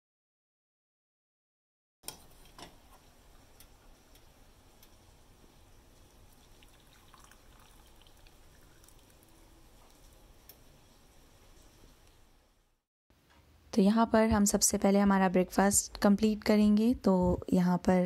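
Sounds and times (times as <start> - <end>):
tea pouring through strainer: 5.8 - 11.7.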